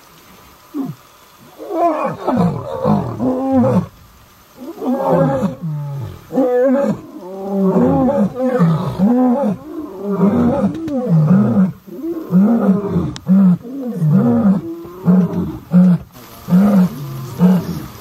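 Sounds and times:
lion roaring: 0:04.6 - 0:17.9.

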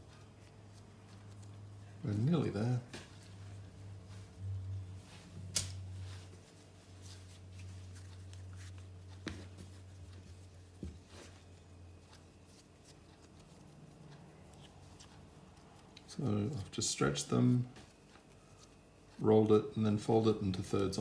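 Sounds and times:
low hum: 0:00.0 - 0:12.5
dough rustling and patting: 0:00.0 - 0:16.4.

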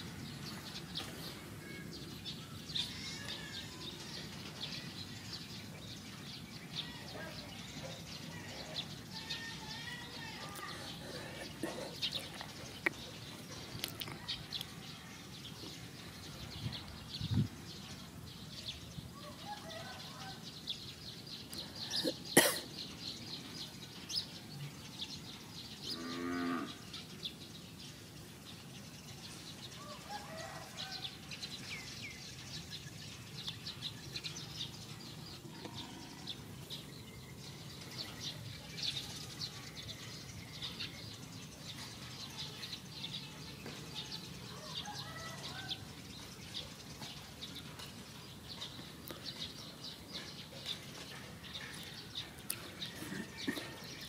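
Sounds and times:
birdsong: 0:00.0 - 0:54.0
cow mooing: 0:25.9 - 0:26.8.

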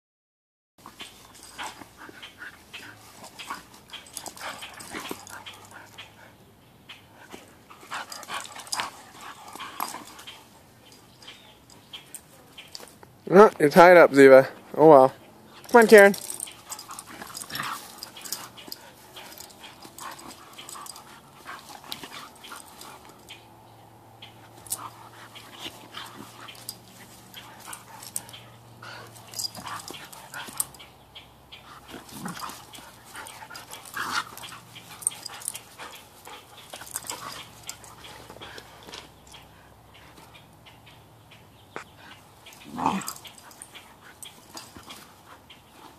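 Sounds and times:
dogs play-growling: 0:00.8 - 0:06.4, 0:07.2 - 0:12.9, 0:15.5 - 0:30.9, 0:31.6 - 0:40.5, 0:42.0 - 0:45.9.

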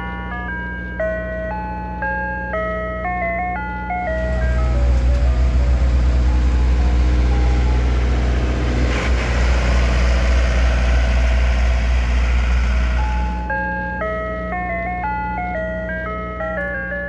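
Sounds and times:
ice cream truck jingle: 0:00.0 - 0:17.0
truck engine running: 0:04.0 - 0:17.0.

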